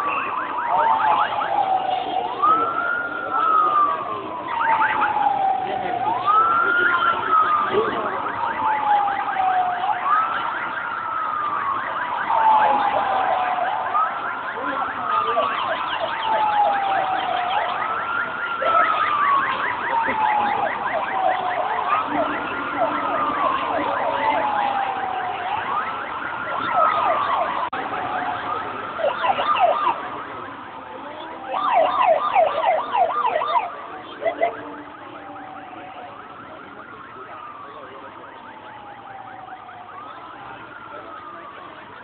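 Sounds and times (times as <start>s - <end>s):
fast-warbling yelp siren: 0.0s - 30.4s, 31.2s - 42.0s
wailing siren: 0.0s - 42.0s.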